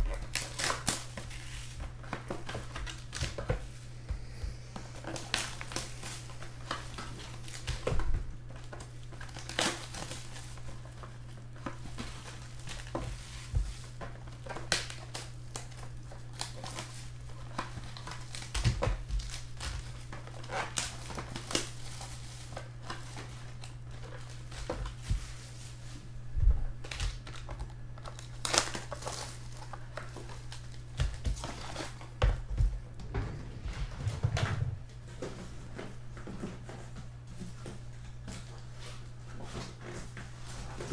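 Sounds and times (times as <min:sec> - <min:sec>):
plastic wrap crinkling and tearing: 0:00.0 - 0:03.8, 0:04.8 - 0:32.5
steady low hum: 0:00.0 - 0:40.9.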